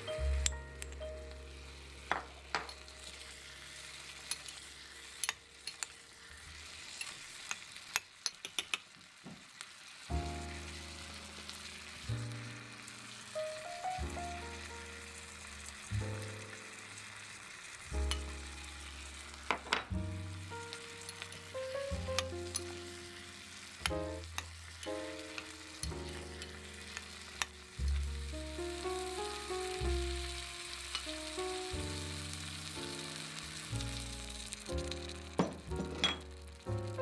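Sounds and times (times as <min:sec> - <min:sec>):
background music: 0:00.0 - 0:04.4, 0:10.1 - 0:37.0
food sizzling in a clay pot: 0:00.0 - 0:37.0
metal spoon clinking on pot: 0:05.2 - 0:06.0, 0:07.0 - 0:08.8.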